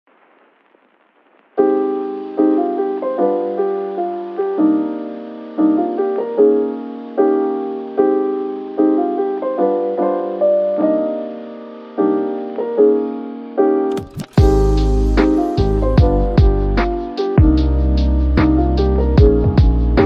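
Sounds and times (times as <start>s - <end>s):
slow piano chords: 1.6s - 20.0s
music with heavy bass: 14.0s - 20.0s.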